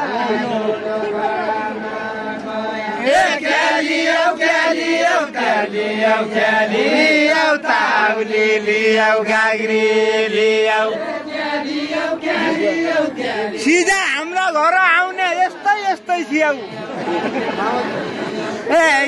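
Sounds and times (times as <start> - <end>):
person chanting folk song: 0.0 - 19.0.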